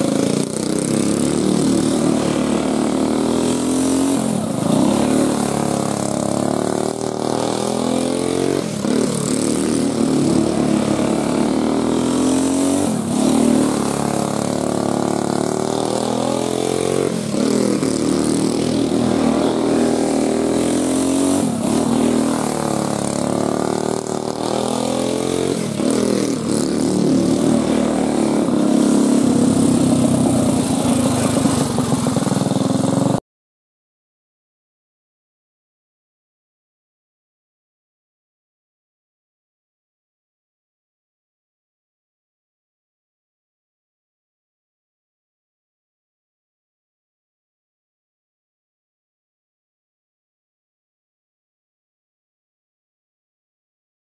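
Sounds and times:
go-kart engine running hard: 0.0s - 33.2s.

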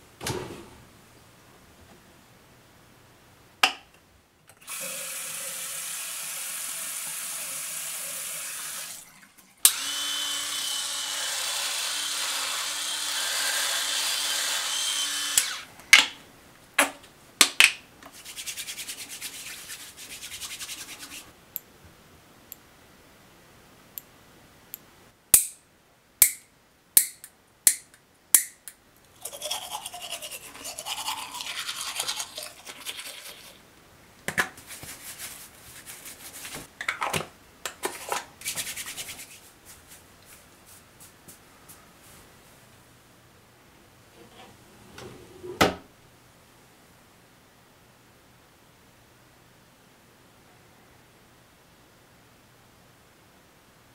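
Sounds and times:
cabinet door clicking open: 0.2s - 0.8s, 44.9s - 45.9s.

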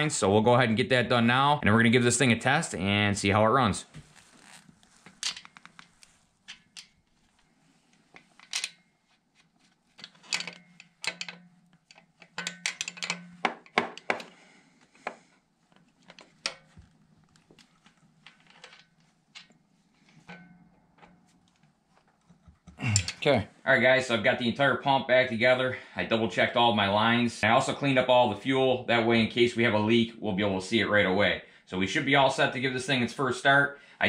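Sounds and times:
metallic clicks of hand tools: 10.0s - 14.4s, 23.0s - 23.2s.

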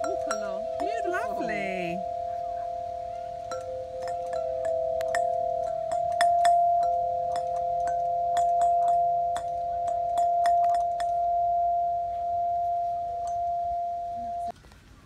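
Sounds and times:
bell-like struck notes: 0.0s - 14.5s
held tones: 0.0s - 14.5s.

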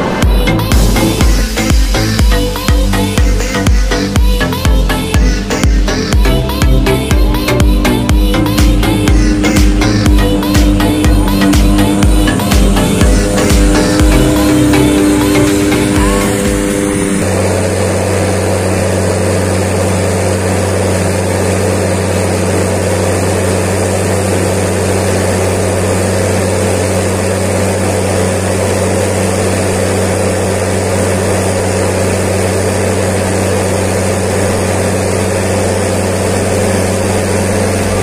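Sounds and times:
tractor diesel engine droning: 0.0s - 38.0s.

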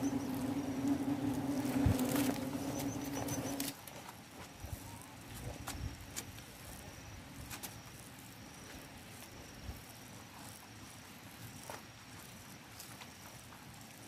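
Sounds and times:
insect trilling: 0.0s - 3.7s
dry wasp nest comb crackling: 0.0s - 4.1s.

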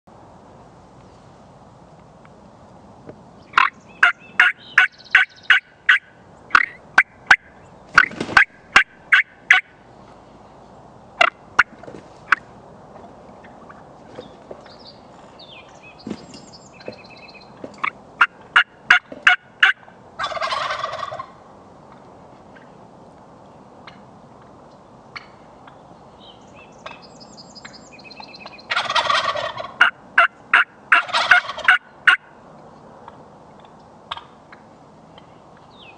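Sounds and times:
turkeys gobbling: 3.5s - 9.7s, 11.2s - 14.8s, 16.8s - 22.7s, 28.5s - 32.3s, 33.0s - 35.3s
turkey yelps: 3.6s - 9.7s, 18.2s - 21.4s, 28.5s - 32.3s.

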